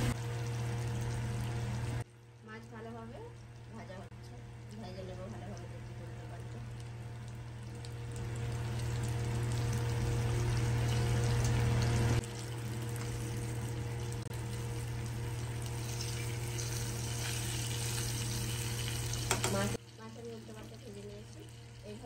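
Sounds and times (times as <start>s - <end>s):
fish sizzling in hot oil: 5.6s - 22.0s
spatula turning food in pan: 8.3s - 22.0s.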